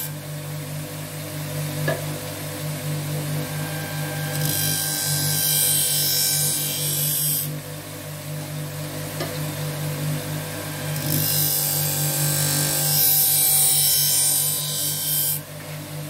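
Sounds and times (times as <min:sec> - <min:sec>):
sharpening motor humming: 0:03.4 - 0:07.6.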